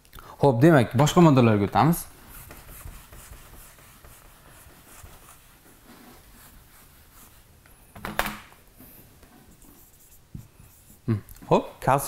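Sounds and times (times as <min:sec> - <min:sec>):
eraser wiping whiteboard: 0:02.0 - 0:07.9, 0:08.8 - 0:11.1.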